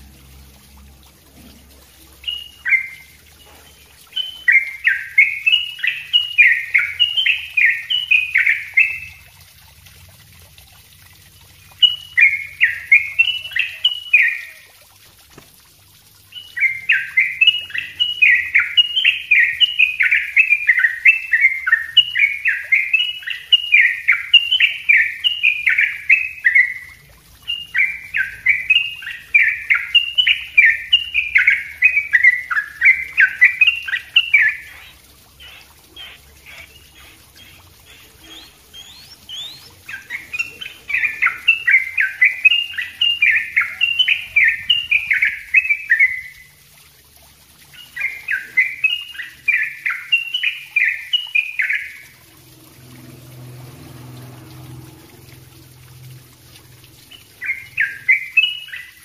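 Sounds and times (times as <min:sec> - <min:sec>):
bird singing fast runs: 0:02.2 - 0:09.3, 0:11.4 - 0:14.6, 0:16.3 - 0:46.5, 0:57.0 - 0:59.0.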